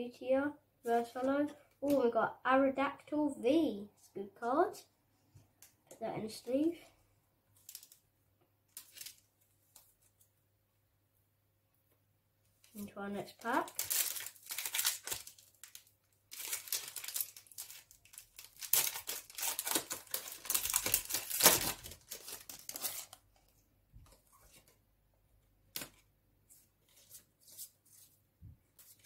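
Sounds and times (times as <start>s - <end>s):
foil wrapper crinkling and tearing: 13.4s - 23.2s.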